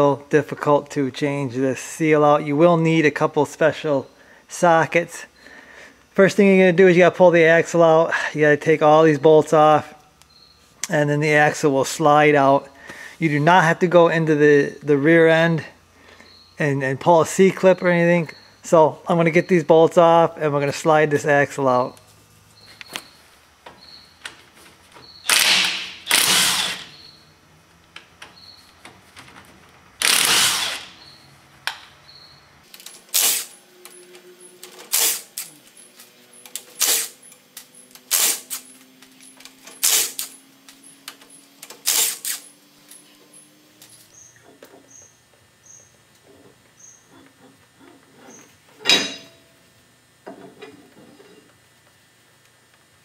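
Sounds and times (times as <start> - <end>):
impact driver rattling bursts: 25.2 - 27.0, 30.0 - 31.1, 39.7 - 40.4, 41.7 - 42.4.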